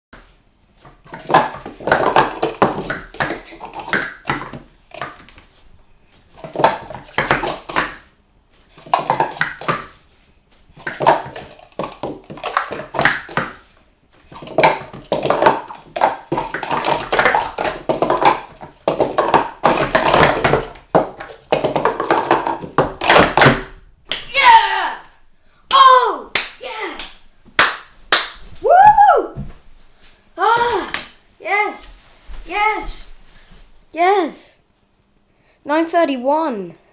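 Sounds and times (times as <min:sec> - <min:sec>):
plastic cups clattering: 0:01.0 - 0:05.3, 0:06.4 - 0:08.0, 0:08.7 - 0:10.0, 0:10.8 - 0:23.7.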